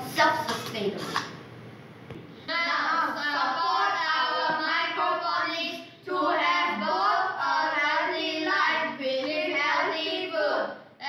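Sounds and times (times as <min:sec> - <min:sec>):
boys singing together: 0:02.5 - 0:10.8.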